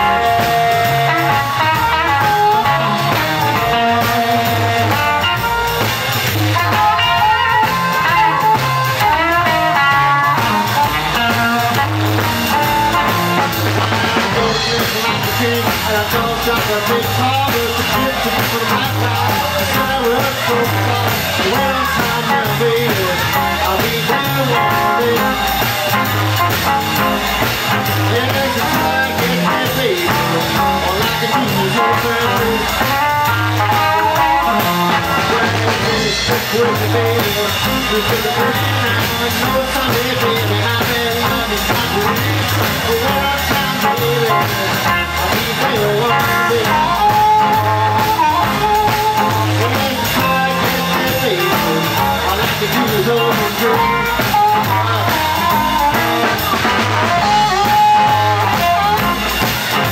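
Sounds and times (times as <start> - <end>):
electric blues band playing: 0.0 - 59.9
harmonica held notes: 40.2 - 59.9.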